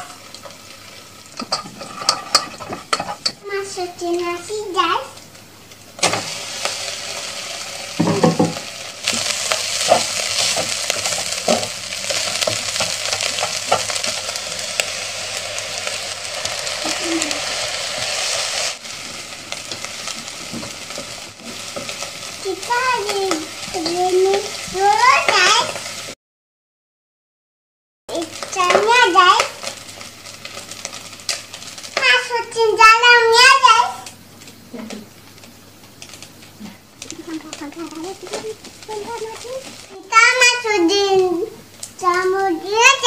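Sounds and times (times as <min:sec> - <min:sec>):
rice sizzling in a pot: 0:00.0 - 0:26.2, 0:28.1 - 0:43.0
wooden spatula scraping and tapping: 0:01.4 - 0:03.4, 0:08.0 - 0:14.2.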